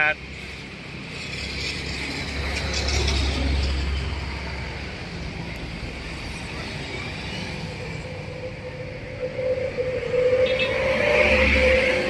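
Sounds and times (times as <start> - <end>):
road traffic passing: 0.0 - 12.0
vehicle passing loudly: 5.8 - 12.0.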